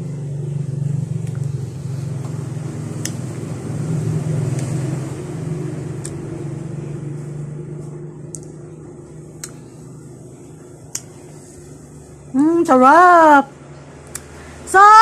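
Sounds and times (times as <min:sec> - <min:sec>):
low motor-like hum: 0:00.0 - 0:15.0
mouth clicks and smacks: 0:08.3 - 0:08.6, 0:09.3 - 0:09.6, 0:10.8 - 0:11.2, 0:14.0 - 0:14.4.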